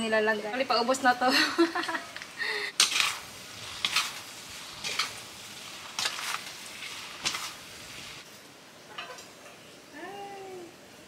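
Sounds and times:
stir-fry sizzle: 0:00.0 - 0:11.0
metal spatula scraping wok: 0:02.7 - 0:08.3.

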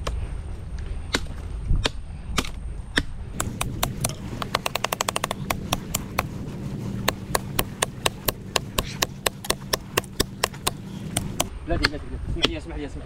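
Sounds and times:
blade chopping wood: 0:01.1 - 0:11.5.

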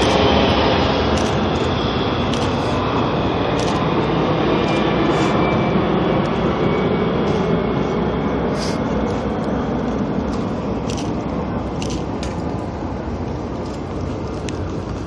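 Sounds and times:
jet engine roar: 0:00.0 - 0:15.0
sharp clicks: 0:03.6 - 0:03.9, 0:10.3 - 0:12.6.

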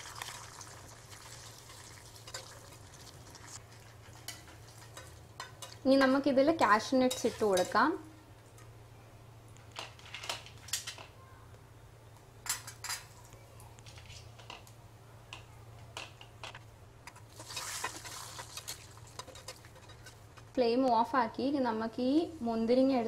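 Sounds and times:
nuts frying in ghee: 0:00.0 - 0:07.9, 0:17.1 - 0:20.9.

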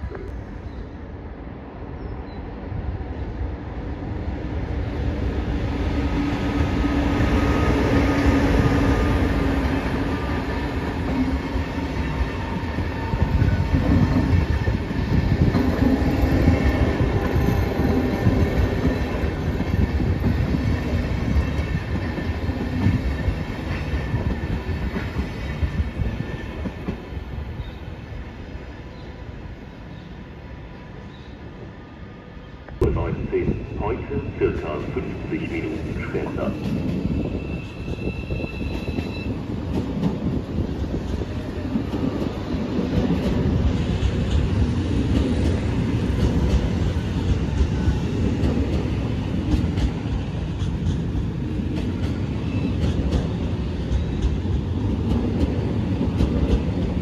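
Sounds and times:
train wheels clattering over rails: 0:36.6 - 0:57.0.

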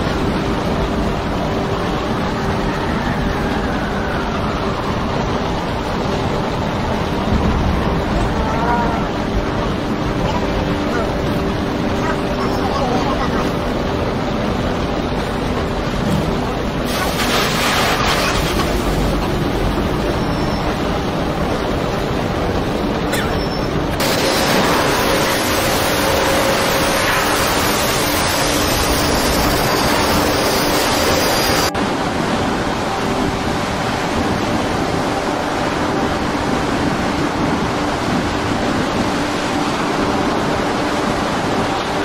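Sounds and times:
storm wind rushing: 0:00.0 - 0:42.0.

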